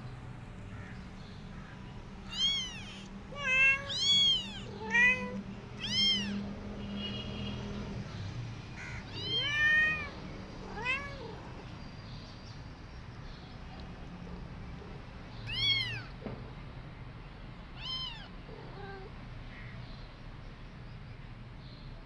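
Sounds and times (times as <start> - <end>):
kittens meowing: 2.2 - 6.5, 8.8 - 11.6, 15.4 - 16.2, 17.8 - 19.2.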